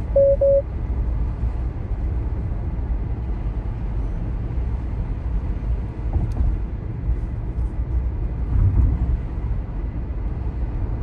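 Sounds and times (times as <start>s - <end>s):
road and tyre rumble: 0.0s - 11.0s.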